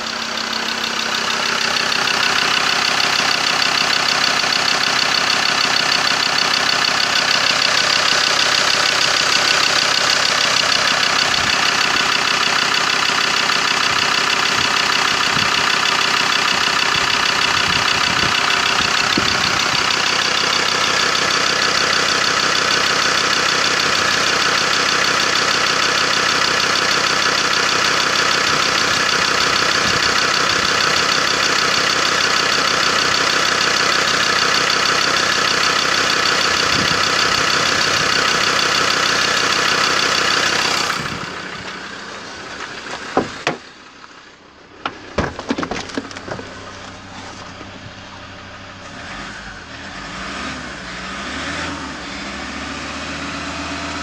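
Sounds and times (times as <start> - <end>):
diesel engine idling: 0.0 - 54.0.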